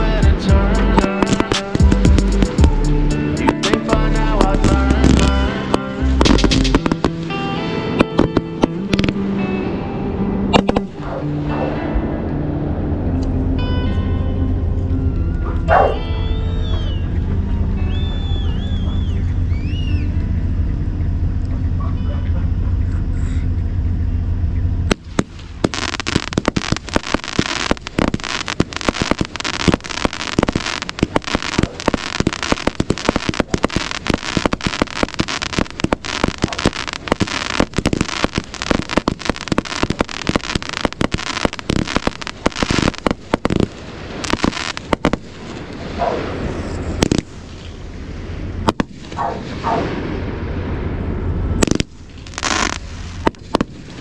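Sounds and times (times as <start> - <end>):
fireworks bangs and crackles: 0.0 - 9.3, 10.5 - 11.2, 24.9 - 54.0
firework whistles: 15.7 - 17.2, 17.8 - 20.2, 24.9 - 47.8, 51.6 - 54.0.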